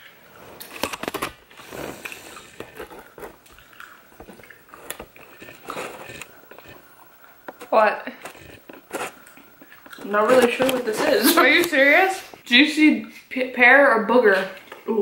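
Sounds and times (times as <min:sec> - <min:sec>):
person chewing: 0:00.0 - 0:12.4.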